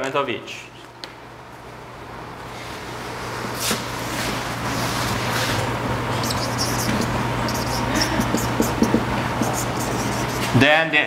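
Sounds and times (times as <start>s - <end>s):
steady low hum: 1.2s - 10.6s
eraser wiping whiteboard: 5.3s - 10.6s
marker squeaking on whiteboard: 6.1s - 10.6s.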